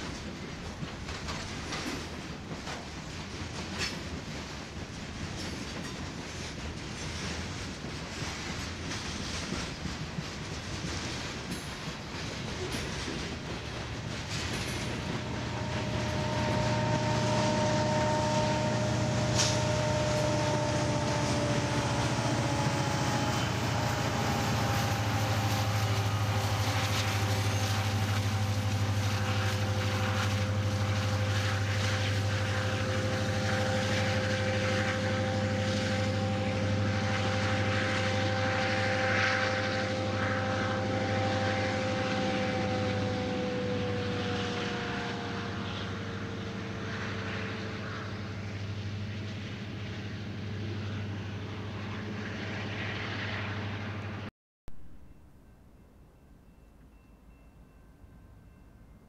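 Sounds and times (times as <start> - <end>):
freight cars rolling on rails: 0.0 - 38.8
diesel locomotive engine drone: 0.0 - 58.7
locomotive whine sliding down: 10.9 - 54.3.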